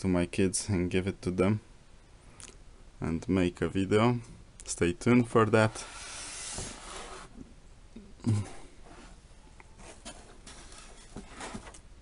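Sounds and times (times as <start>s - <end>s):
hand rustling cardboard: 5.5s - 7.4s, 8.8s - 11.9s.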